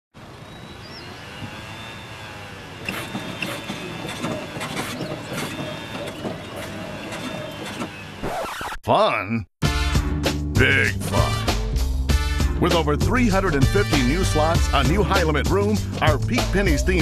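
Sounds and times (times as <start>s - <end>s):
steady background hum: 0.2s - 8.3s.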